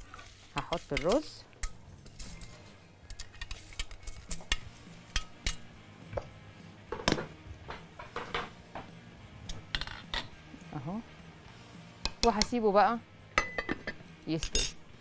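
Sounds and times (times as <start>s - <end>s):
metal colander clinking on pot: 0.6s - 2.5s.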